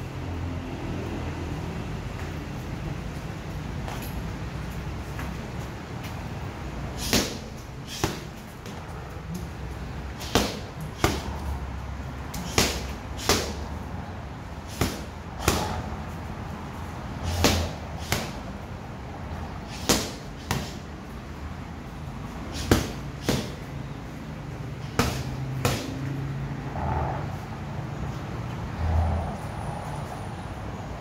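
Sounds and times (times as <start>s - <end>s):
boxing gloves smacking pads: 7.0s - 9.5s, 10.1s - 11.4s, 12.3s - 13.7s, 14.7s - 16.2s, 17.3s - 18.5s, 19.7s - 20.9s, 22.5s - 23.7s, 24.8s - 26.2s.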